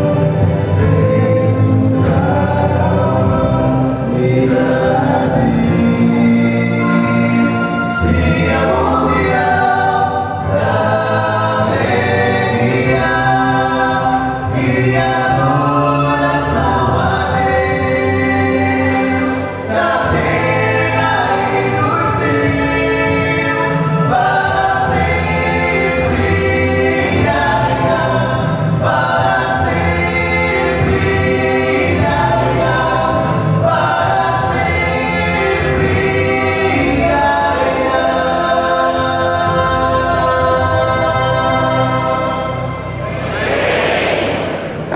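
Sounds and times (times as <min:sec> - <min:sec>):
male vocal quartet singing gospel: 0:00.0 - 0:44.9.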